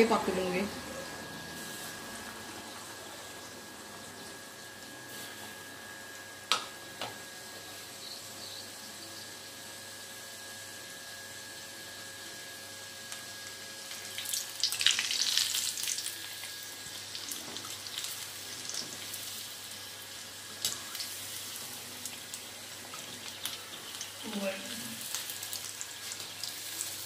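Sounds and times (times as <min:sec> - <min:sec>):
chicken deep-frying in oil: 0:00.0 - 0:27.0.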